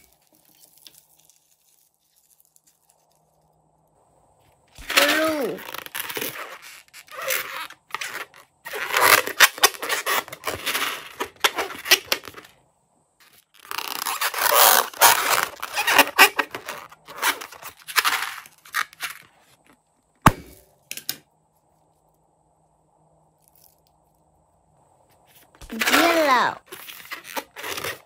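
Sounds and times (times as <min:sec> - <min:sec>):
balloon rustling and scraping: 0:04.7 - 0:12.6, 0:13.2 - 0:19.7, 0:25.1 - 0:28.0.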